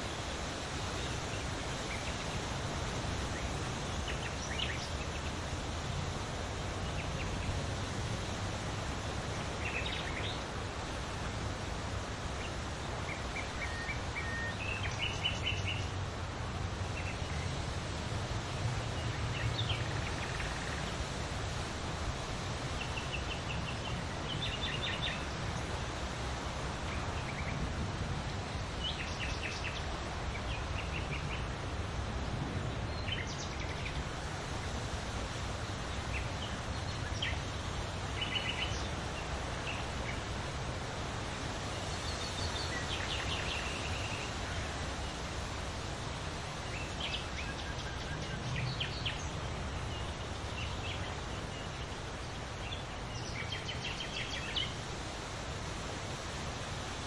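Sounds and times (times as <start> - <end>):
wind rustling leaves: 0.0 - 57.0
small birds chirping: 22.6 - 25.8, 41.6 - 45.3, 46.6 - 55.4.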